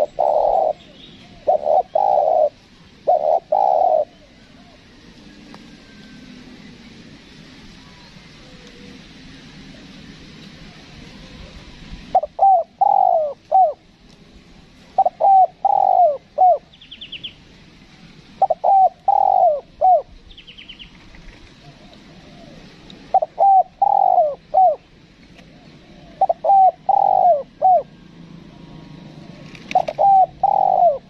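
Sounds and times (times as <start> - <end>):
dove cooing: 0.0 - 6.5, 10.6 - 13.8, 14.9 - 16.8, 18.3 - 20.2, 21.1 - 31.0.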